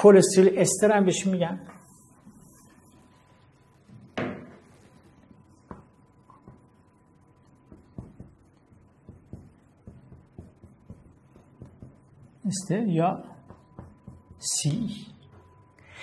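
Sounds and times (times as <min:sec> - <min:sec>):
thump on whiteboard: 0:04.2 - 0:04.7, 0:07.7 - 0:08.4
marker scratching on whiteboard: 0:07.7 - 0:15.0.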